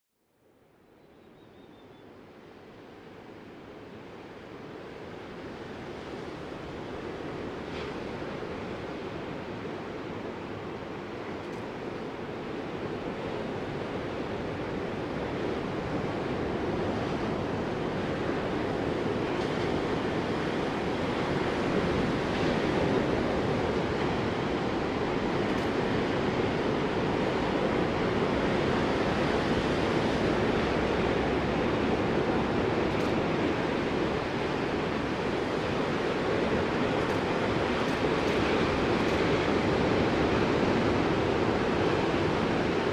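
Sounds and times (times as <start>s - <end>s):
ocean surf breaking: 5.4s - 42.9s.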